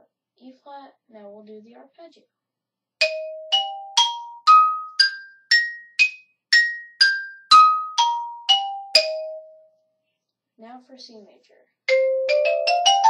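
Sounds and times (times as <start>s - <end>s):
xylophone arpeggio: 3.0s - 9.7s, 11.9s - 13.0s.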